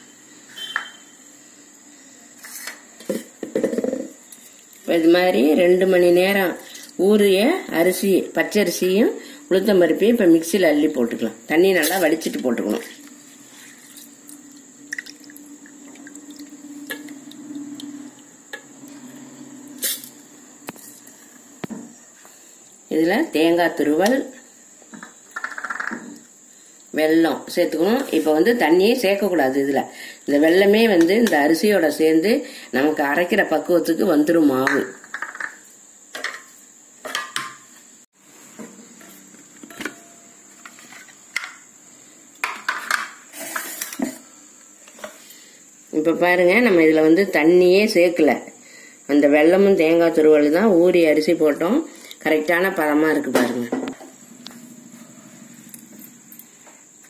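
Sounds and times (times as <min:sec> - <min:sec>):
thin high-pitched whine: 0:00.0 - 0:02.9, 0:38.6 - 0:41.7
dripping water: 0:13.7 - 0:19.0.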